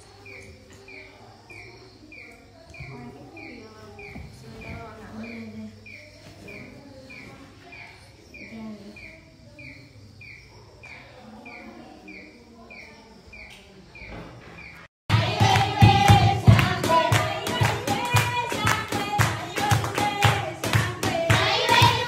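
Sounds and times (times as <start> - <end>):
small bird chirping: 0.0 - 14.9
group singing: 15.1 - 22.0
handclapping: 15.1 - 22.0.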